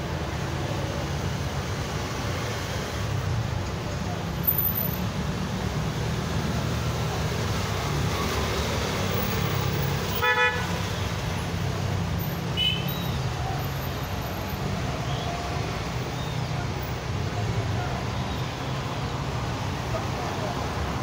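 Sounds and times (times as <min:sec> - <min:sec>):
road traffic rumble: 0:00.0 - 0:21.0
car horn toot: 0:10.2 - 0:10.7.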